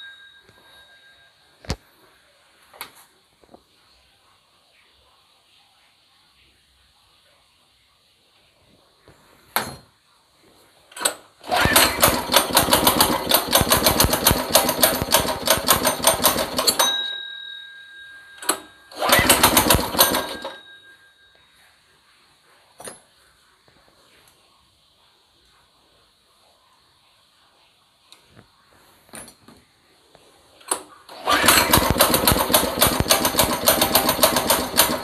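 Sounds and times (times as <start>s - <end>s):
small engine starting and dying: 11.0s - 16.8s, 18.4s - 20.6s, 30.7s - 35.0s.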